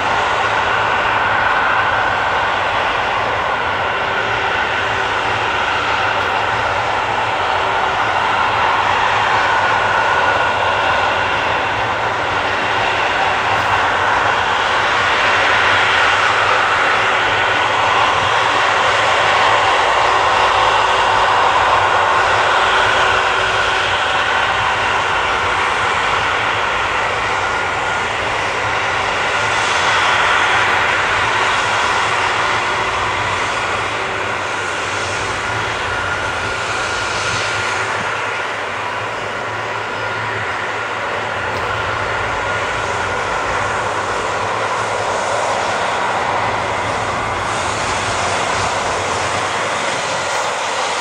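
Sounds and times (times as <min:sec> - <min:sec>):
jet engines whining: 0:00.0 - 0:51.0.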